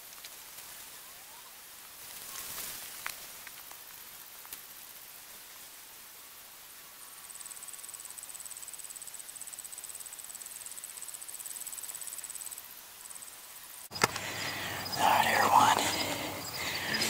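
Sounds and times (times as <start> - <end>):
insect trilling: 7.0 - 17.0.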